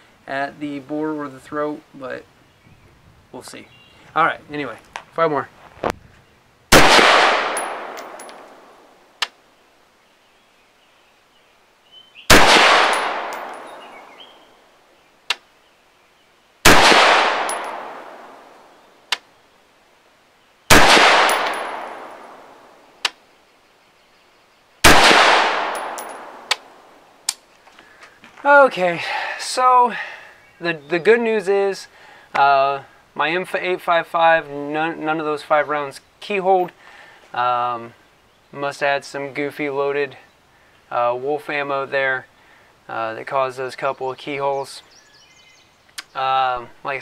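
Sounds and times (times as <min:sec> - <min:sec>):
rifle shots with echo: 0:06.7 - 0:08.8, 0:12.3 - 0:14.1, 0:16.6 - 0:18.5, 0:20.7 - 0:22.5, 0:24.8 - 0:26.8.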